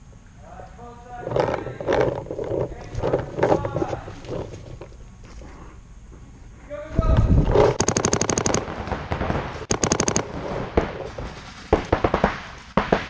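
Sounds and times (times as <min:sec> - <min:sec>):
paintball marker rapid firing: 0:07.5 - 0:13.0.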